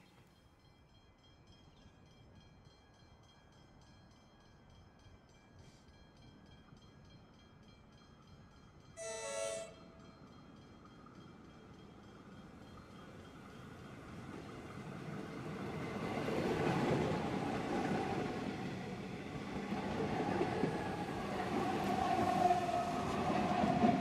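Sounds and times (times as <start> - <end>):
low rumble of train: 0.9 - 24.0
train horn blast: 9.0 - 10.0.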